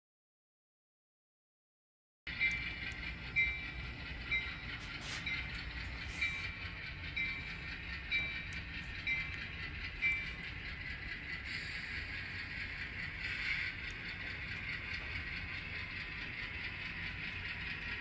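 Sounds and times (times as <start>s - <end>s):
low diesel engine sound: 2.3s - 18.0s
model locomotive bell ringing: 2.3s - 18.0s
short air hisses: 4.8s - 5.5s.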